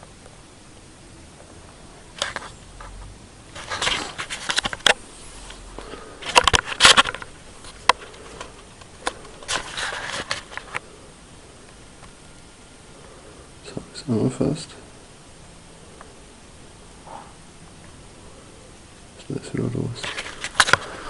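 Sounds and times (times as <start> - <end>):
handling rustling and scraping: 2.1 - 10.9, 20.0 - 21.0.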